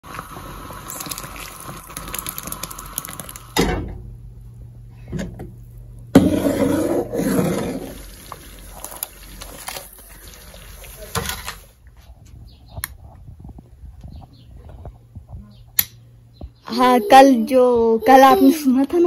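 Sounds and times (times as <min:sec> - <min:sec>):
jam boiling and bubbling in pot: 0:00.0 - 0:12.0
liquid being poured: 0:00.1 - 0:03.6, 0:07.0 - 0:11.2.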